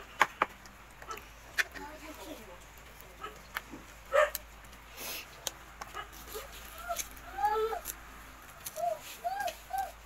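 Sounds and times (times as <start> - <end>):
dog whimpering: 6.3 - 7.8, 8.8 - 10.0.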